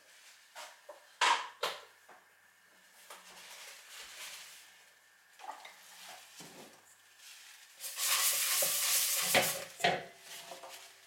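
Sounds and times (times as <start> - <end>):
rustling hiss: 7.2 - 11.0.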